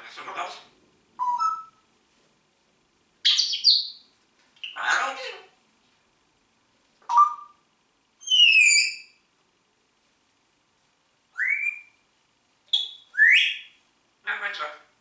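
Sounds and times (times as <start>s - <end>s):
parrot whistling: 1.2s - 1.8s, 7.1s - 7.6s, 8.2s - 9.2s, 11.3s - 12.0s, 12.7s - 13.8s.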